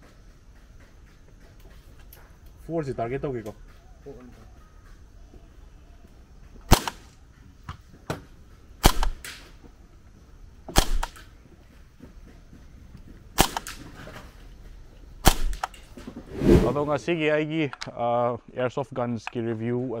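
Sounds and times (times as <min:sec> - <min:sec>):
airsoft rifle shots: 0:06.7 - 0:07.1, 0:08.8 - 0:09.5, 0:10.7 - 0:11.3, 0:13.4 - 0:13.9, 0:15.2 - 0:15.8.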